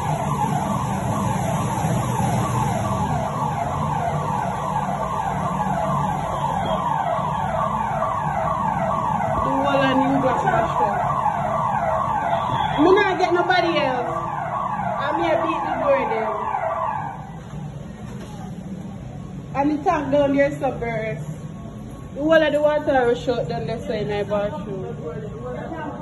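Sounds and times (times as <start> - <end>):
electronic alarm siren: 0.0 - 17.3.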